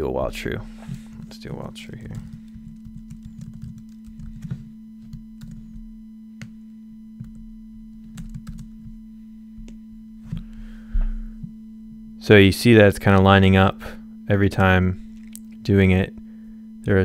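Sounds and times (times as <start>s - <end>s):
steady low sine tone: 0.0s - 17.0s
computer keyboard typing: 1.9s - 5.8s, 7.2s - 7.4s, 8.0s - 8.8s.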